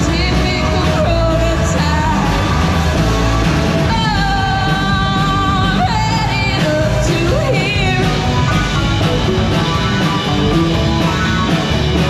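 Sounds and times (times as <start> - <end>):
woman singing: 0.0 - 2.6, 3.8 - 8.8
live rock band playing: 0.0 - 12.0.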